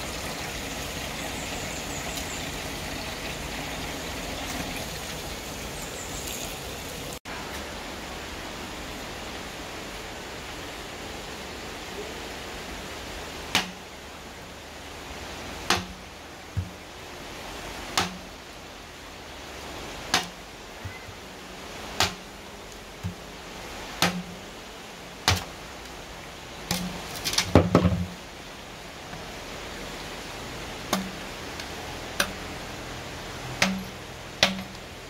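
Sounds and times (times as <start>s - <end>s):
sharp knocks with low thuds: 26.7s - 28.2s.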